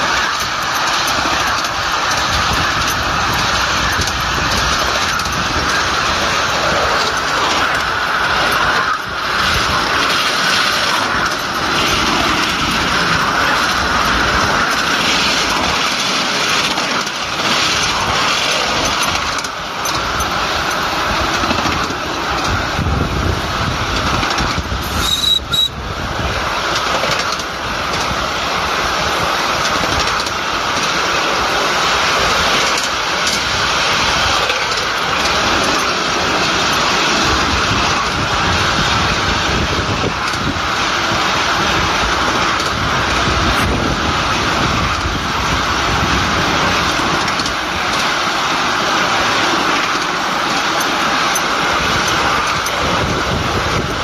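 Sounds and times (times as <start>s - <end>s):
wheels rattling on rails: 0.0s - 54.0s
high squeak: 24.8s - 25.8s.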